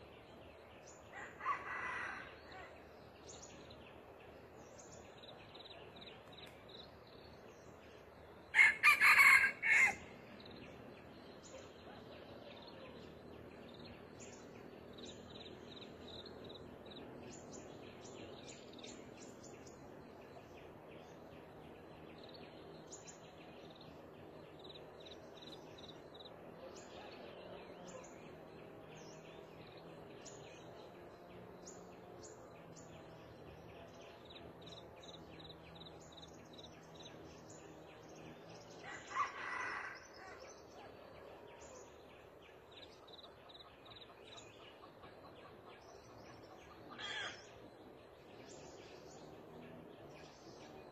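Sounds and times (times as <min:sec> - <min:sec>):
rooster crowing: 0:01.2 - 0:02.7, 0:08.5 - 0:10.1, 0:38.8 - 0:40.4.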